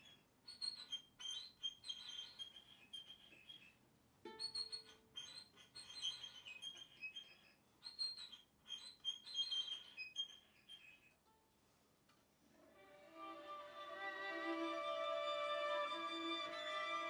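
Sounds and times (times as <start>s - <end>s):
violin and viola playing high tones: 12.6s - 17.0s.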